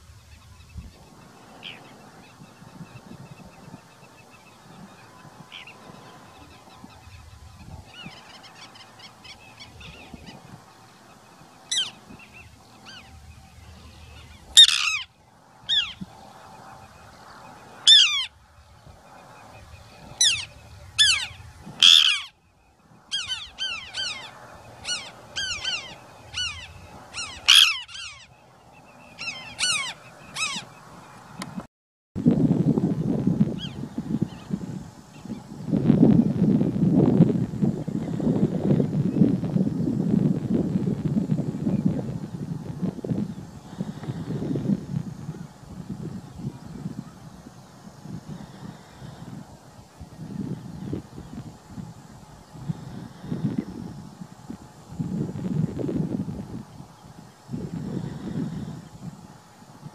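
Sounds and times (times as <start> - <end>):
birds calling with falling pitch: 0.0 - 31.6.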